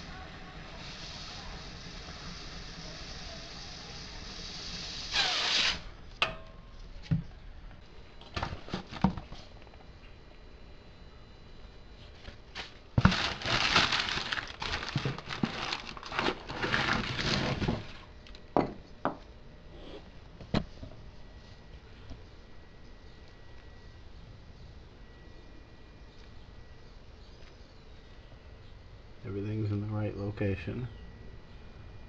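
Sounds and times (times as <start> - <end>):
cardboard rustling and scraping: 8.3 - 9.5, 12.1 - 18.1.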